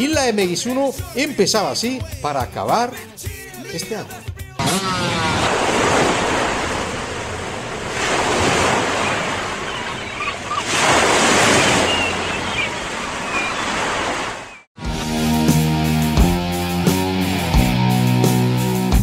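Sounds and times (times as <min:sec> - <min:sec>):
ocean surf breaking: 0:04.6 - 0:14.7.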